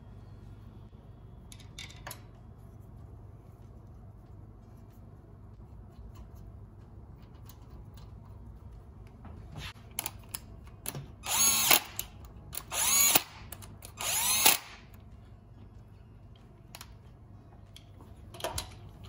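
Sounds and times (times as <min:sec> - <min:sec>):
power drill whirring: 0:11.2 - 0:14.8.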